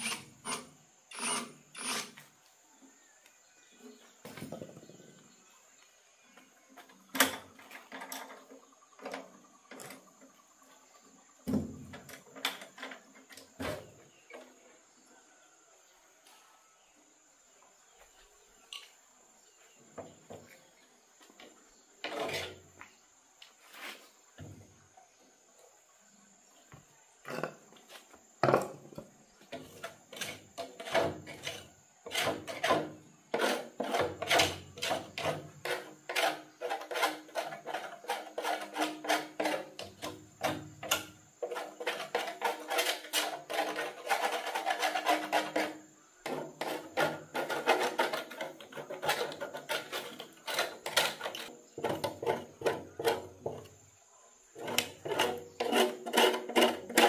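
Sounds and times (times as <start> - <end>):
metal tool scraping metal drum: 22.0 - 22.8, 29.5 - 53.8, 54.5 - 57.0.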